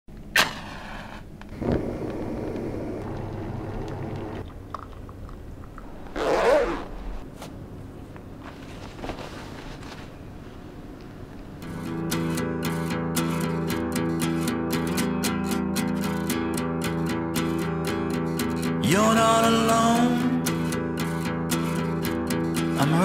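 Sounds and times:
jacket zipper pulled up: 6.0 - 7.3
handling and rustling: 6.1 - 10.6.

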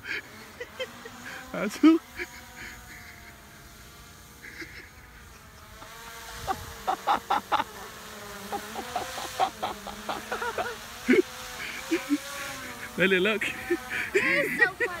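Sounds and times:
drone propellers humming: 0.0 - 15.0.

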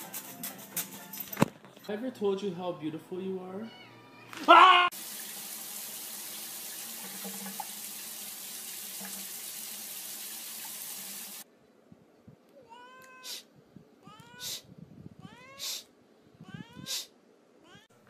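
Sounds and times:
cat meowing: 3.6 - 4.9, 12.6 - 14.6, 15.2 - 15.8, 16.4 - 18.0.

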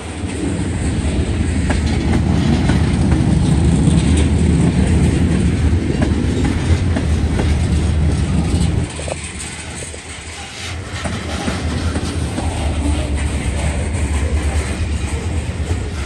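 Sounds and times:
freight train rumbling past: 0.0 - 16.0.

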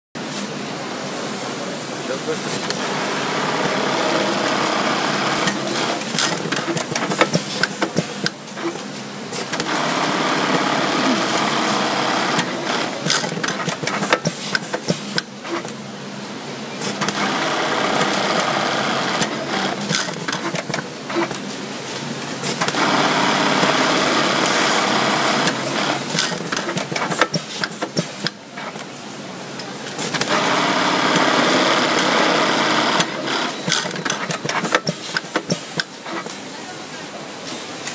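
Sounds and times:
sewing machine stitching: 2.6 - 8.8, 9.4 - 15.7, 16.8 - 21.4, 22.4 - 28.8, 30.0 - 36.3.

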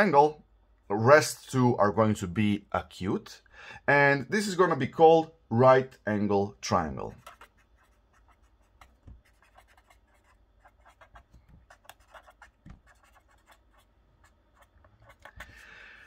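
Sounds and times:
marker scratching on paper: 7.1 - 15.6.

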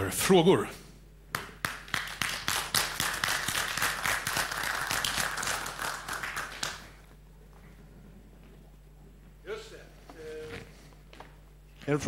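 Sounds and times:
audience applauding: 1.6 - 7.0.

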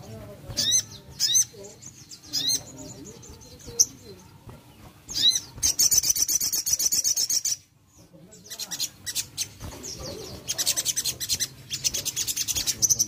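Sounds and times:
songbird chirping: 0.0 - 13.0
fast bird trill: 5.0 - 7.7, 8.4 - 13.0.

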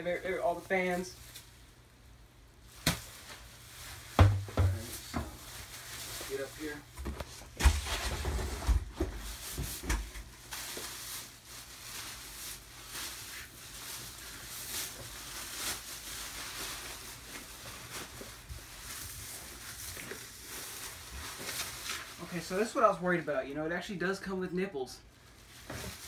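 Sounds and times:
dull thumps: 4.2 - 5.4
plastic bag crinkling: 4.6 - 7.0, 9.2 - 22.7, 25.2 - 26.0.

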